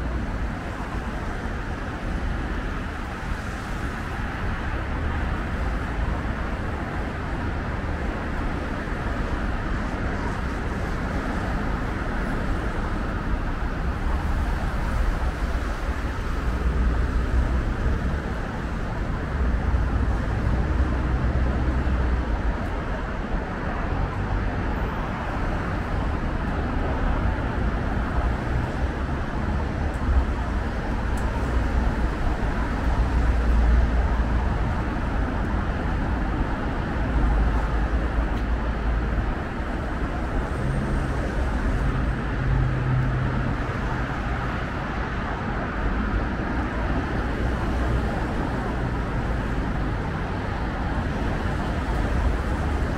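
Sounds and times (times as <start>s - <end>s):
city road traffic: 0.0s - 52.9s
low traffic rumble: 0.0s - 52.9s.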